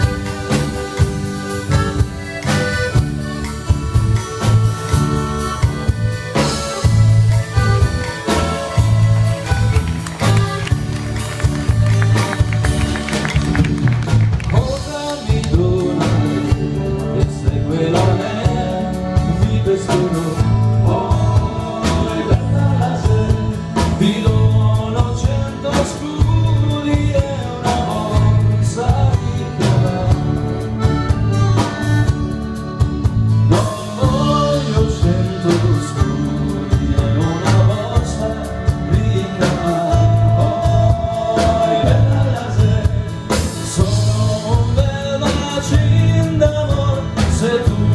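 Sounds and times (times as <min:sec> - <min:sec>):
accordion: 0:00.0 - 0:47.9
bass beat: 0:00.0 - 0:47.9
drums: 0:00.0 - 0:47.9
guitars: 0:00.0 - 0:47.9
man singing: 0:14.4 - 0:31.8, 0:33.3 - 0:47.9.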